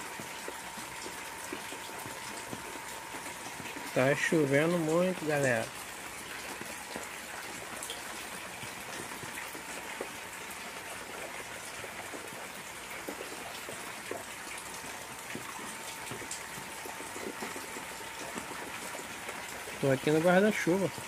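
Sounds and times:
heavy rain on pond and leaves: 0.0s - 21.0s.

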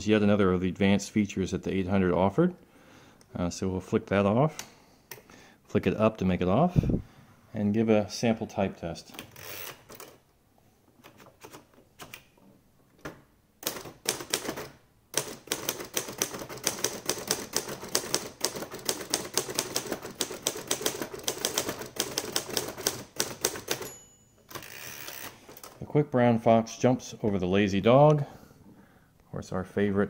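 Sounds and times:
typewriter keystrokes: 13.6s - 23.9s.

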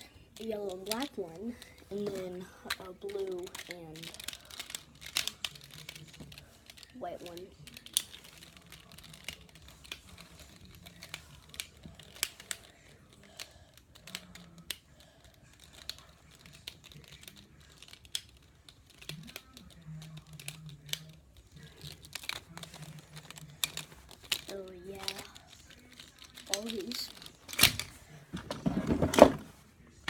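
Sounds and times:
plastic puzzle segments clicking: 0.3s - 27.9s.

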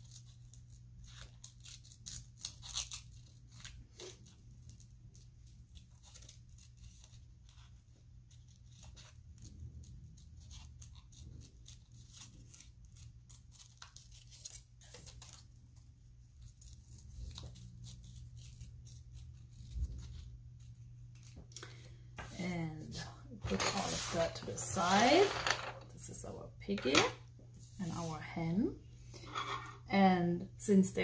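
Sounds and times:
scissors snipping paper: 0.0s - 15.4s, 16.4s - 21.4s
low steady hum: 0.0s - 31.0s
paper rustling: 23.4s - 25.6s.

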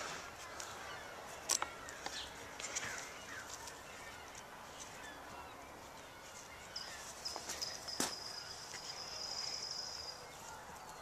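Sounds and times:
shrub branches rustling: 0.0s - 11.0s
thin high steady tone: 6.4s - 10.5s.

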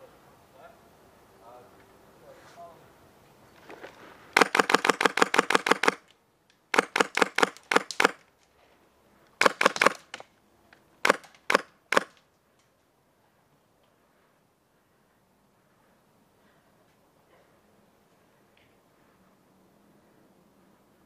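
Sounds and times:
airsoft gun firing: 4.4s - 6.0s, 6.7s - 8.2s, 9.4s - 10.2s, 11.0s - 12.2s.

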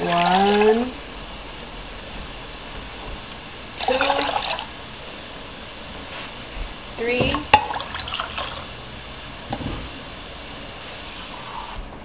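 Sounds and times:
water running and splashing: 0.0s - 11.8s.

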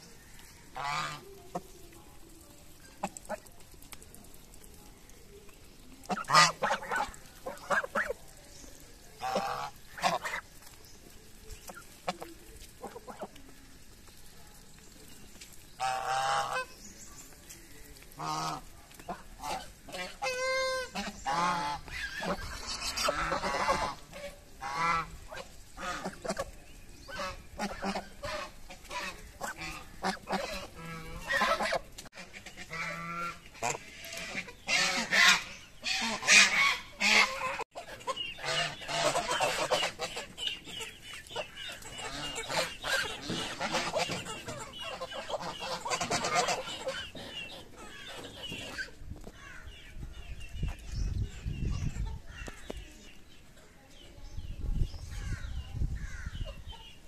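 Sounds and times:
geese honking: 0.7s - 1.7s, 6.0s - 8.3s, 9.2s - 10.6s, 15.8s - 16.8s, 18.1s - 26.5s, 27.1s - 49.0s.

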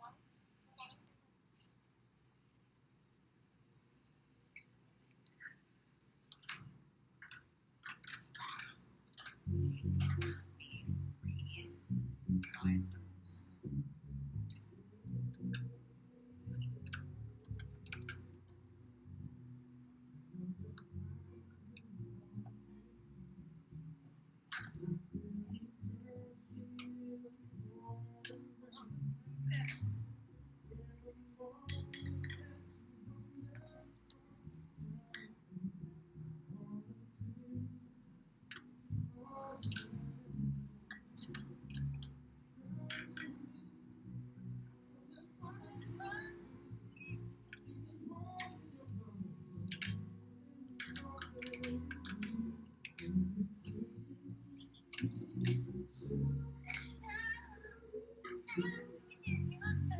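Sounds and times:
faint clicks: 4.5s - 10.8s, 49.7s - 50.1s, 50.7s - 59.8s
faint low rumble: 9.4s - 57.9s.

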